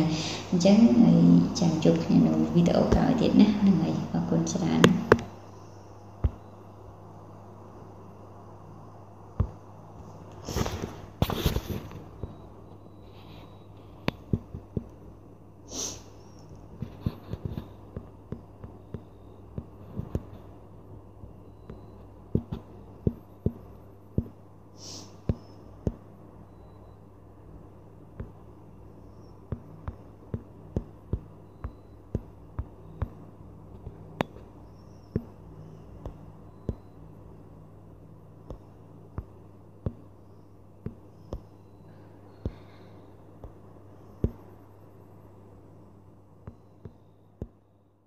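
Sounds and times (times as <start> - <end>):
steady low hum: 0.0 - 48.0
short breathy hiss: 15.7 - 16.1, 24.8 - 25.2.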